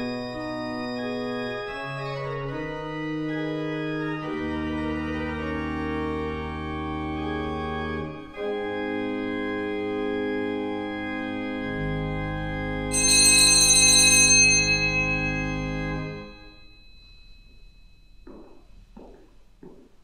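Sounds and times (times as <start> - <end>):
organ playing sustained chords: 0.0 - 16.6.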